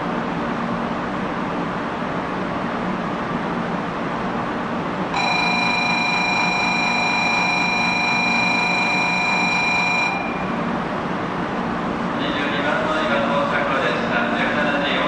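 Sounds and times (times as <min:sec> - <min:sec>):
train platform background noise: 0:00.0 - 0:15.0
high-pitched warning signal: 0:05.1 - 0:10.7.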